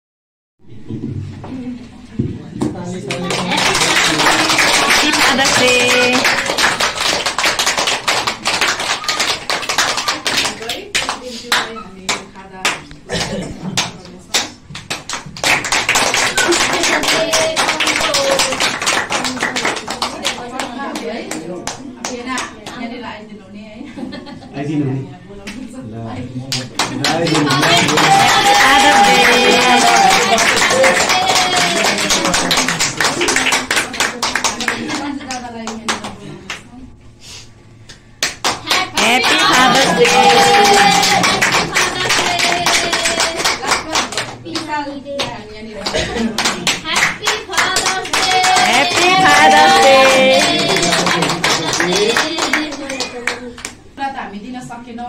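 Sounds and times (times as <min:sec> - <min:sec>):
people clapping: 0:02.6 - 0:22.9, 0:26.5 - 0:36.7, 0:37.9 - 0:53.8
voices: 0:27.0 - 0:32.5, 0:38.7 - 0:46.4, 0:47.0 - 0:54.4.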